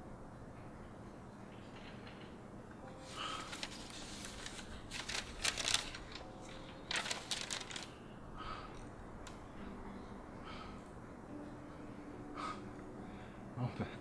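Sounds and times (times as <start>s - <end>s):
paper rustling: 3.0s - 8.0s.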